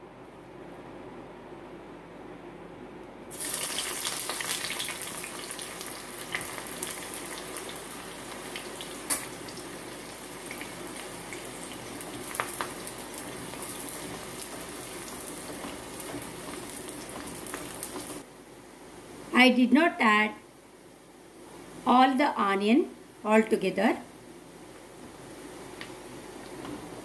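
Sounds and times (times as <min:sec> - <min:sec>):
onions sizzling in hot oil: 0:03.3 - 0:18.3.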